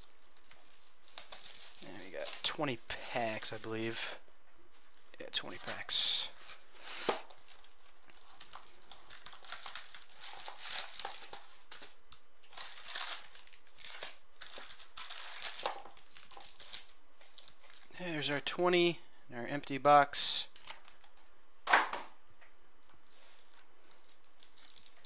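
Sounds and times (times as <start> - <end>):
foil packs crinkling: 0.0 - 4.2, 4.9 - 18.0, 23.0 - 25.0.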